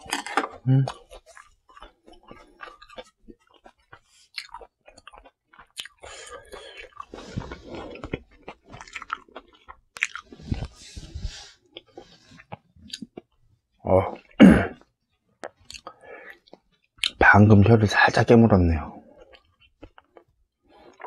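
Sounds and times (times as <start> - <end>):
wet chewing: 0.0 - 13.4, 19.1 - 21.0.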